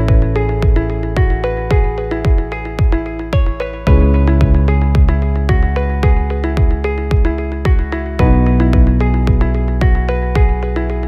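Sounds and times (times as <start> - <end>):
kick drum thump: 0.0 - 10.6.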